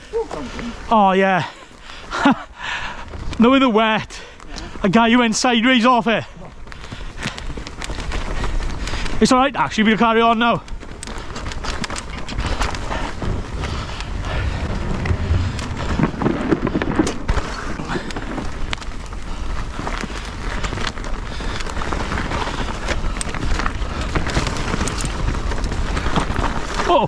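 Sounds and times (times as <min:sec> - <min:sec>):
bike tyres rolling on dirt: 0:00.0 - 0:27.0
bike rattling and clicking: 0:00.3 - 0:27.0
wind on microphone: 0:12.1 - 0:26.4.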